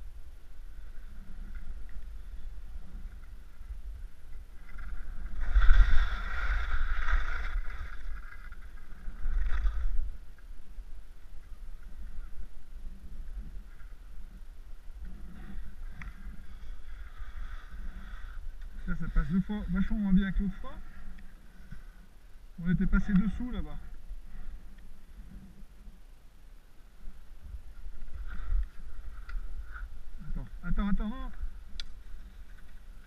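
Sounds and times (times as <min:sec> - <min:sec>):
wind rumble on microphone: 0:00.0 - 0:33.0
skis scraping over snow: 0:00.7 - 0:10.3
ski turn swish: 0:04.7 - 0:08.4.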